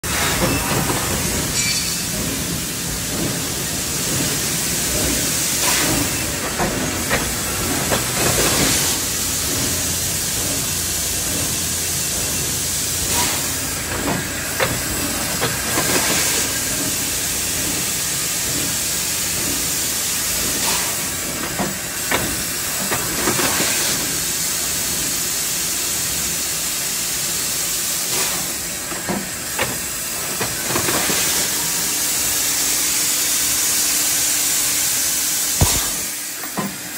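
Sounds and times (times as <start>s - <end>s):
machine hiss: 0.1s - 36.9s.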